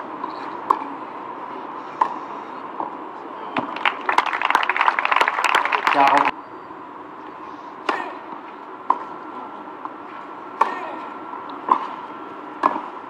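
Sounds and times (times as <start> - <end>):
tennis ball struck by racquet: 11.6 - 12.0, 12.6 - 12.9.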